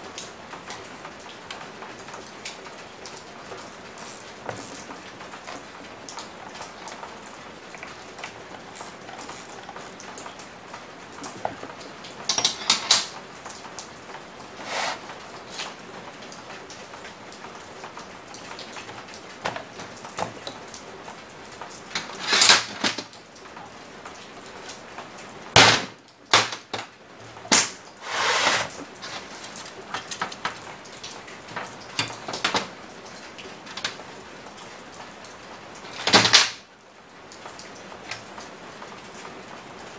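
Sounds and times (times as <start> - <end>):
steady background hiss: 0.0 - 39.9
metal tools clicking and knocking: 12.3 - 13.1.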